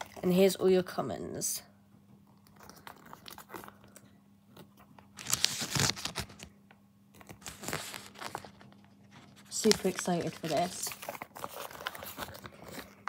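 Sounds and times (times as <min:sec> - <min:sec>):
paper rustling and crinkling: 0:02.4 - 0:04.0, 0:04.7 - 0:06.5, 0:07.1 - 0:13.0.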